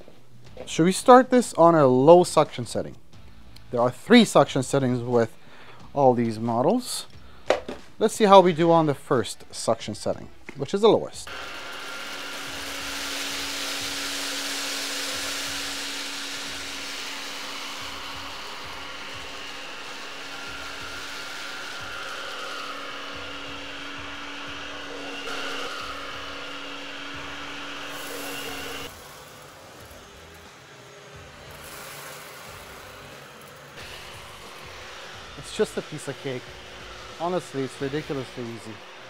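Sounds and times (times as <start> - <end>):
vacuum cleaner motor whir: 11.3 - 39.0.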